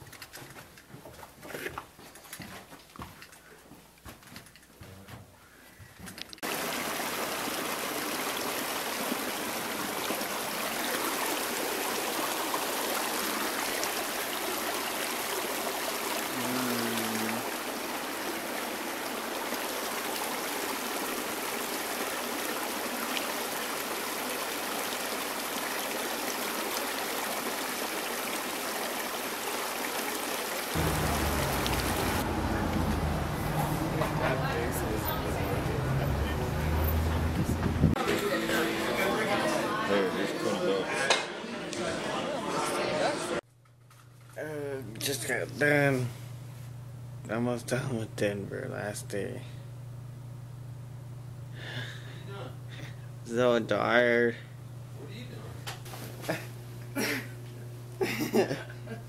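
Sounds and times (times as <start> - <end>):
water rushing over stones: 6.4 - 33.6.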